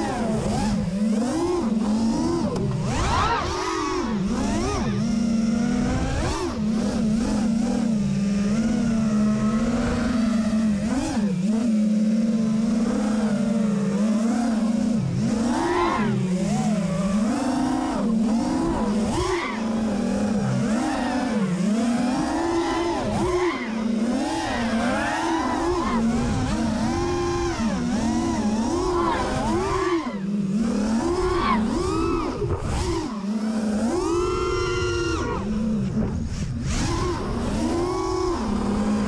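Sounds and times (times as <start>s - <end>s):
quadcopter motors whining: 0.0s - 39.0s.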